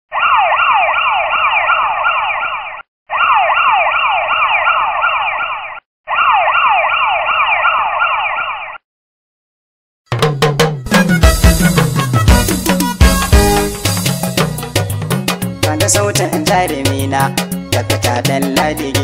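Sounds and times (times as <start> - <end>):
siren with falling sweeps: 0.1 - 8.8
music with sharp drum hits: 10.1 - 15.5.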